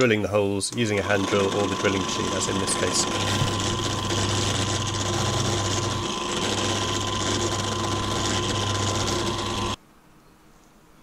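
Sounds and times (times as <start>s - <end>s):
drilling machine boring wood: 0.9s - 9.8s.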